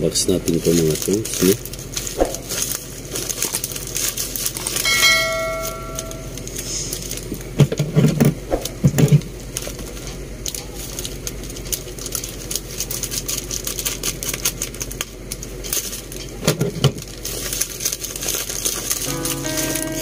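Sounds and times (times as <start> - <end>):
plastic bag crinkling: 0.2 - 7.4, 9.5 - 16.2, 16.8 - 20.0
scissors cutting plastic: 10.5 - 19.8.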